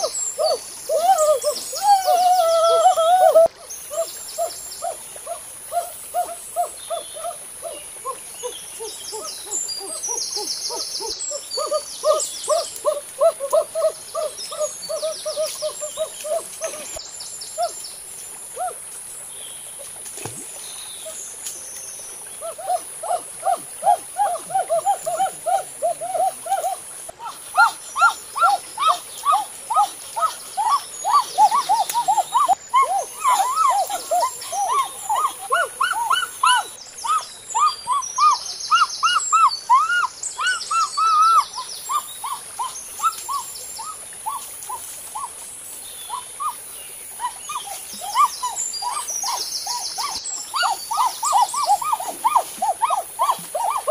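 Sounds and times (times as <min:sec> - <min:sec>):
steady high hiss: 0:00.0 - 0:53.9.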